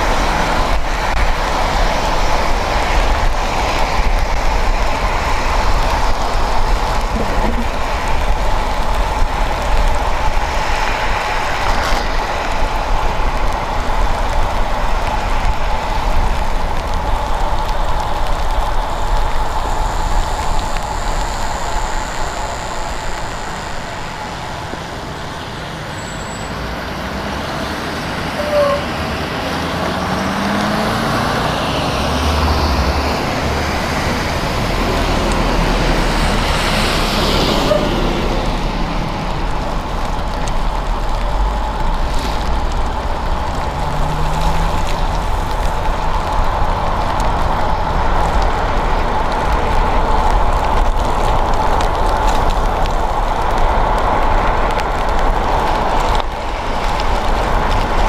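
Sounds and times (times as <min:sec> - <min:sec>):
tyres hissing on wet pavement: 0:00.0 - 0:58.0
motor traffic passing: 0:19.2 - 0:58.0.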